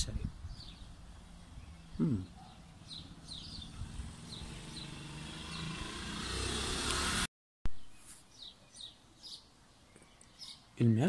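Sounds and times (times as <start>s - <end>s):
sparrows chirping: 0.0s - 6.9s, 7.8s - 11.0s
passing vehicle: 2.6s - 7.3s.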